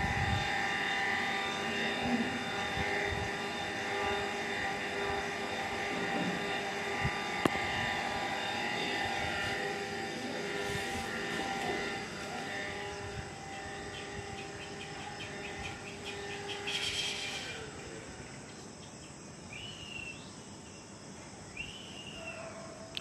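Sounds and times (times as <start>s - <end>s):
distant engine drone: 0.0s - 23.0s
insect ticking chirps: 11.8s - 23.0s
whistled calls: 12.5s - 18.9s, 19.5s - 20.5s, 21.5s - 22.4s.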